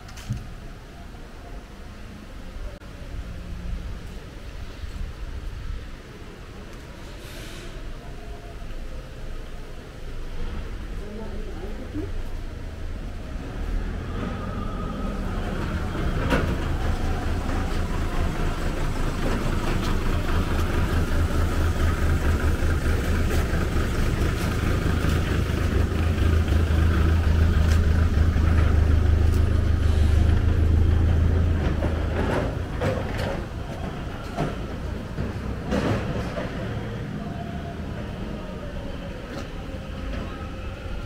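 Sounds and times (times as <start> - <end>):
truck engine humming: 10.9 - 41.0.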